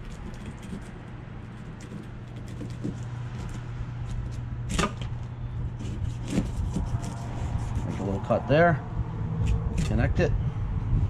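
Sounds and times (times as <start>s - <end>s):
steady low hum: 0.0s - 11.0s
knife slicing through fish scales: 5.8s - 8.2s.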